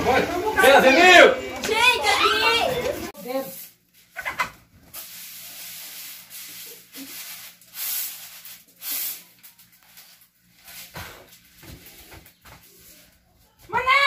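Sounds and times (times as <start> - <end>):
corn kernels rustling in a sieve: 3.2 - 4.2, 4.8 - 13.2.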